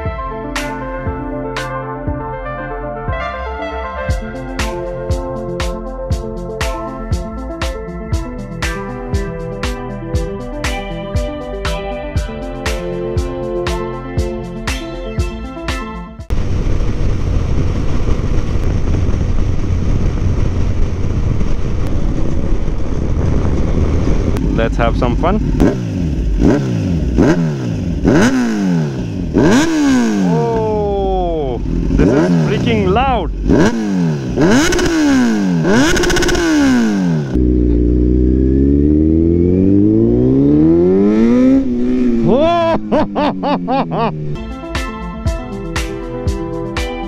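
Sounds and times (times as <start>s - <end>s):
wind buffeting microphone: 16.3s - 26.3s
motorcycle running: 16.3s - 44.6s.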